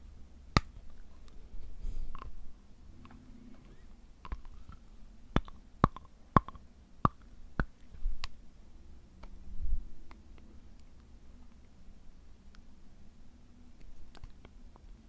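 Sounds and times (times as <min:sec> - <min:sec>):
teeth clicking on fingernails: 0:05.4 - 0:08.4.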